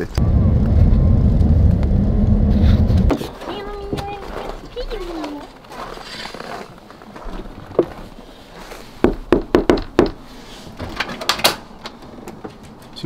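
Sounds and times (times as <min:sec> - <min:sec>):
knocking on a door: 0:09.0 - 0:10.2.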